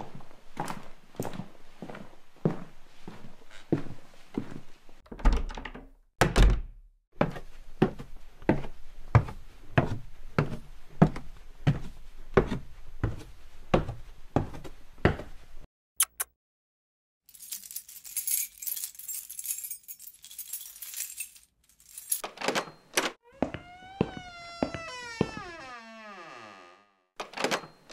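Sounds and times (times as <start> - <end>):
footsteps climbing stairs: 23.2 - 25.9.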